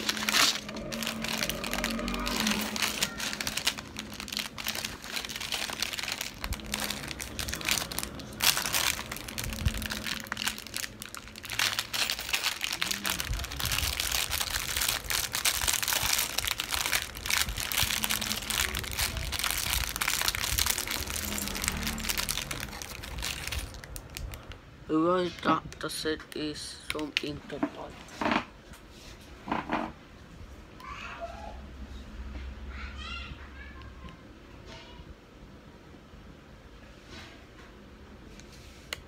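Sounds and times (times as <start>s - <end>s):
plastic bag crinkling: 0.0s - 24.6s.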